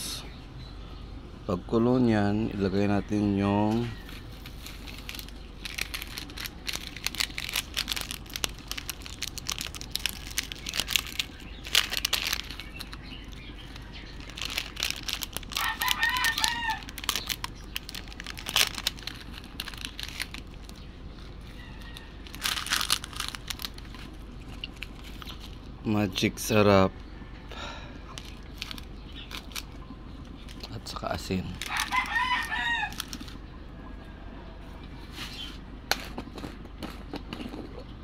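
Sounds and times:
low hum: 0:00.0 - 0:38.0
small clicks and crackles: 0:04.1 - 0:25.7, 0:28.1 - 0:30.8, 0:31.5 - 0:33.4
chicken calling: 0:12.4 - 0:18.2, 0:31.6 - 0:34.8.

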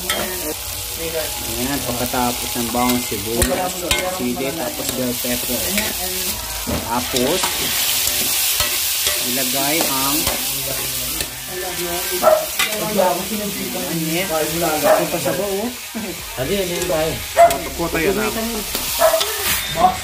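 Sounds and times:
food sizzling in a wok: 0:00.0 - 0:20.0
voices talking: 0:00.0 - 0:20.0
metal spatula scraping a pan: 0:01.8 - 0:20.0.

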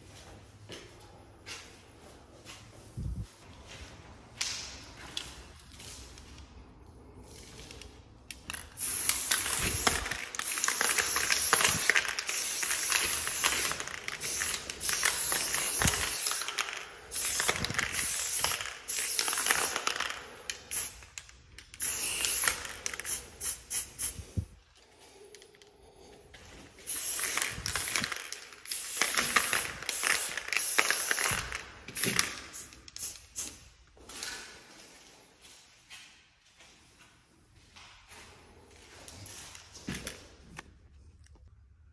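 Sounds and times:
aerosol spray can hissing: 0:21.8 - 0:24.3.

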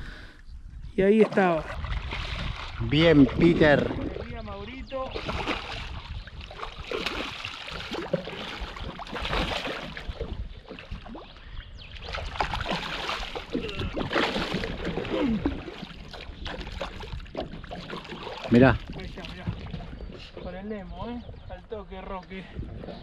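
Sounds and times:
water sloshing against boat: 0:01.0 - 0:23.0.

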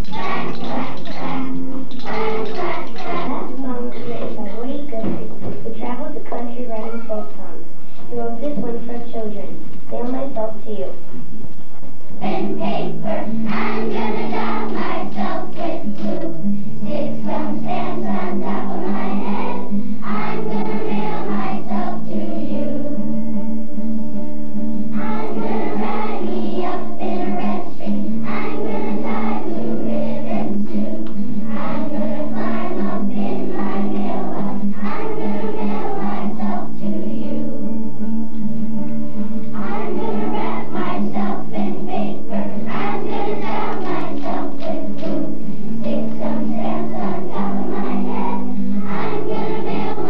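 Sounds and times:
children's choir singing: 0:00.0 - 0:04.4, 0:12.2 - 0:23.2, 0:24.9 - 0:37.8, 0:39.5 - 0:50.0.

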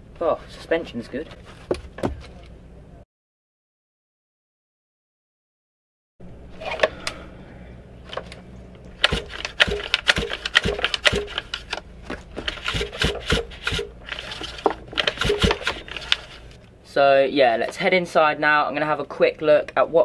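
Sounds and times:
recoil starter pulls: 0:12.5 - 0:16.4.

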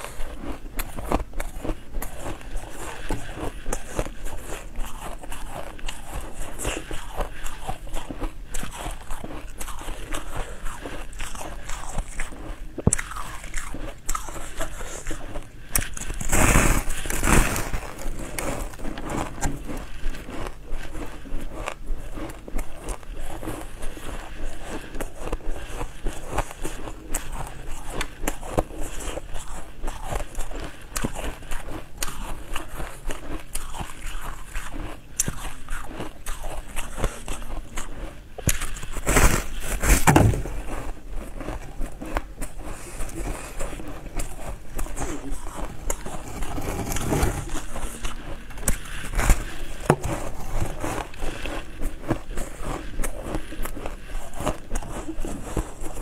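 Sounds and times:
crunching ice: 0:00.0 - 0:24.2, 0:32.0 - 0:56.0.

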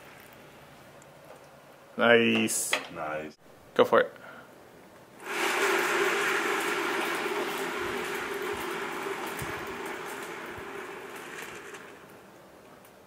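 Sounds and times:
turntable bearing rolling rumble: 0:05.2 - 0:13.0.

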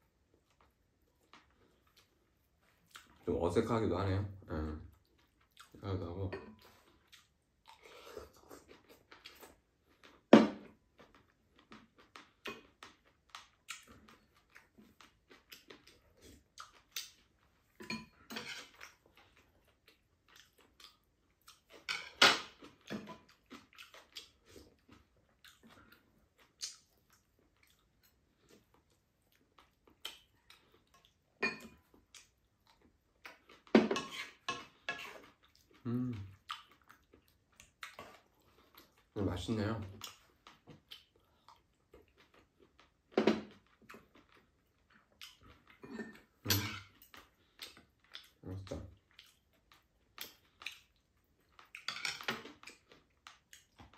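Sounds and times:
soft chewing: 0:00.0 - 0:53.9
dishes clattering: 0:45.8 - 0:46.9, 0:51.9 - 0:52.4.

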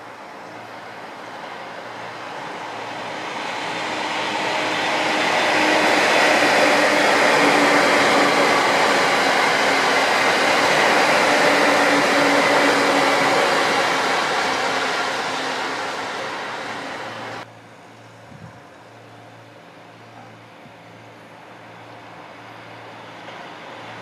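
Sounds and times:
train wheels rumbling on rails: 0:00.0 - 0:17.5.

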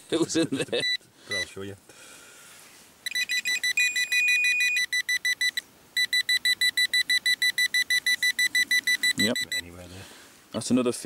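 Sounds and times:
metal detector probe beeping: 0:00.8 - 0:01.5, 0:03.0 - 0:09.7.

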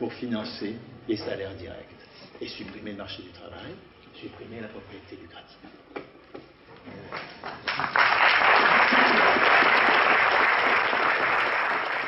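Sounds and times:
audience applauding: 0:07.1 - 0:12.0.

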